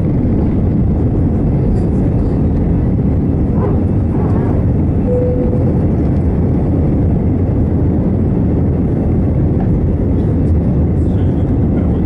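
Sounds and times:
jet engines rushing in cabin: 0.0s - 12.0s
short single tone: 5.0s - 6.0s.

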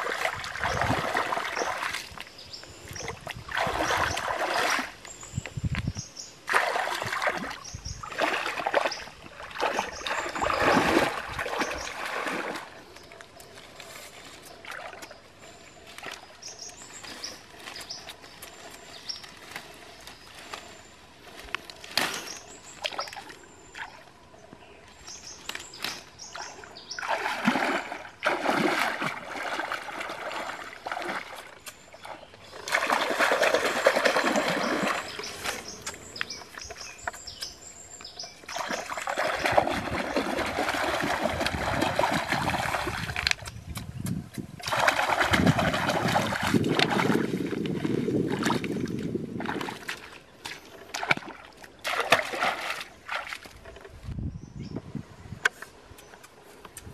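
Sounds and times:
hands splashing in water: 0.0s - 2.3s, 3.0s - 5.0s, 6.4s - 12.8s, 25.5s - 37.2s, 38.4s - 44.0s, 44.6s - 53.6s
leaves rustling and snapping: 15.9s - 23.4s, 25.2s - 26.2s, 42.7s - 47.8s.

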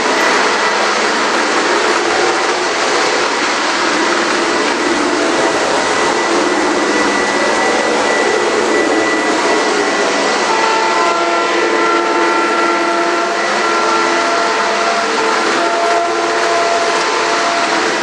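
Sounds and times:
model train wheels and motors rumbling: 0.0s - 18.0s
steady tones at different pitches: 0.0s - 18.0s.

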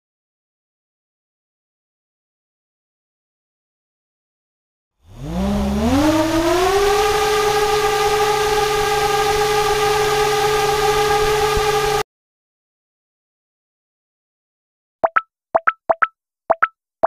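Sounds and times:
electric motor propeller whine: 5.0s - 12.0s.

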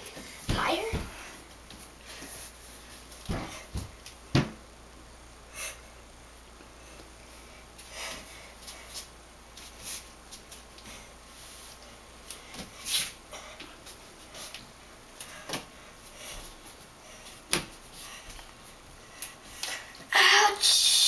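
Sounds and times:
child's voice: 0.5s - 1.1s, 20.1s - 21.0s.

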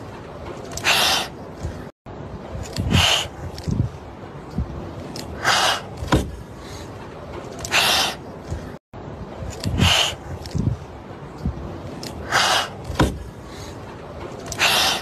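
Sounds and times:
kittens hissing: 0.7s - 1.4s, 2.8s - 3.4s, 5.4s - 6.0s, 7.6s - 8.2s, 9.7s - 10.2s, 12.2s - 12.9s.

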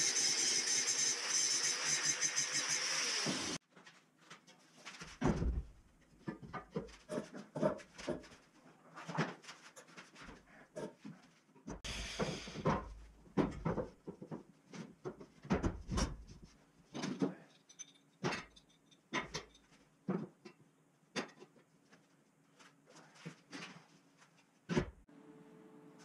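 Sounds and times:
tools and parts clattering on workbench: 6.2s - 8.4s, 16.9s - 20.6s.

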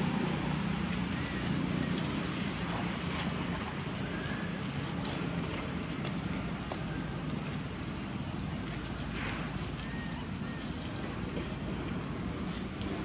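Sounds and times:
high-pitched insect drone: 0.0s - 13.0s.

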